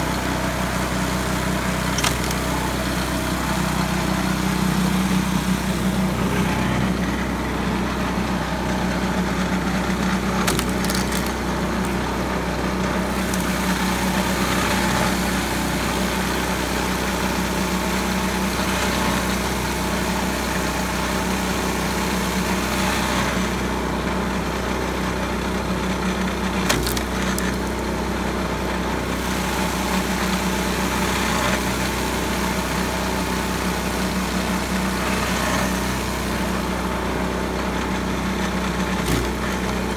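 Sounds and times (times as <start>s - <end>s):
log splitter engine running: 0.0s - 39.9s
wood cracking and splintering: 1.7s - 3.3s, 9.6s - 15.1s, 26.3s - 28.0s, 38.8s - 39.9s.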